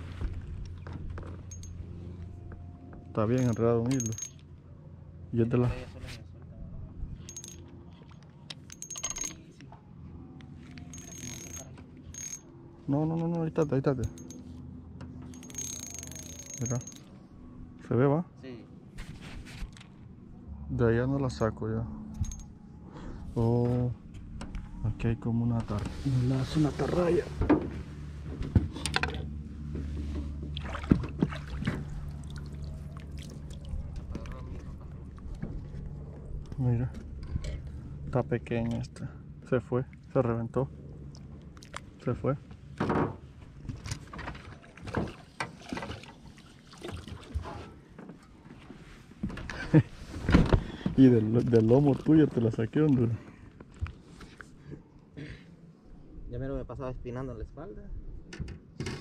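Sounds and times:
fishing gear clattering: 0:03.2 - 0:04.5, 0:07.2 - 0:09.6, 0:10.7 - 0:12.6, 0:13.6 - 0:14.4, 0:15.2 - 0:17.2
fishing reel clicking and whirring: 0:10.9 - 0:12.4, 0:15.3 - 0:17.0.

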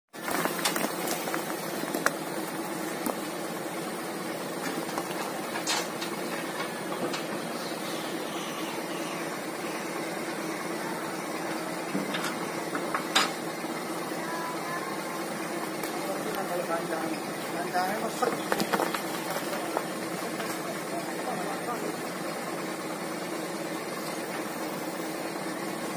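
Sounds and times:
truck engine running: 0:00.1 - 0:25.9
sand unloading: 0:00.2 - 0:06.9.

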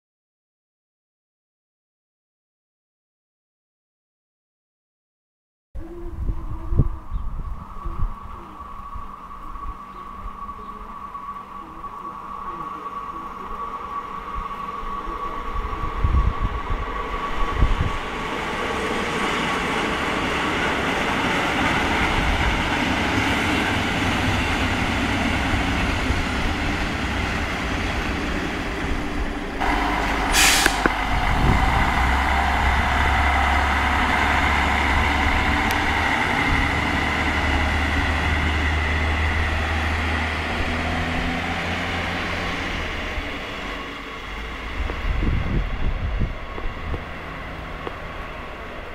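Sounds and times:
diesel railcar running: 0:07.3 - 0:48.9
air brake hiss: 0:30.2 - 0:31.0.

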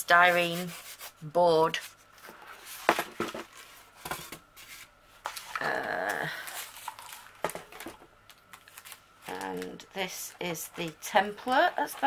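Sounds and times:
cardboard box and bags rustling: 0:06.3 - 0:09.8.

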